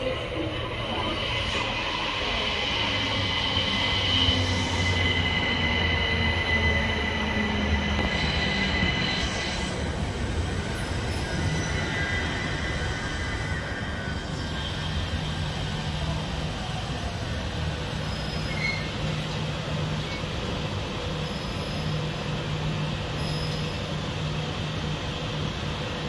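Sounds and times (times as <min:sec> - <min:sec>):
train hum: 0:00.0 - 0:26.0
high-pitched wheel squeal: 0:10.6 - 0:15.4, 0:18.0 - 0:19.2, 0:23.2 - 0:23.9.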